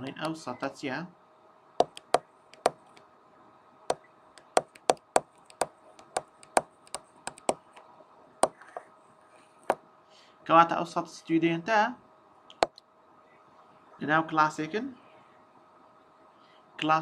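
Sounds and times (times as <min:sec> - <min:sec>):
faint steady hum: 0:00.0 - 0:17.0
stylus tapping on tablet: 0:01.8 - 0:03.0, 0:04.4 - 0:07.6, 0:08.4 - 0:08.9.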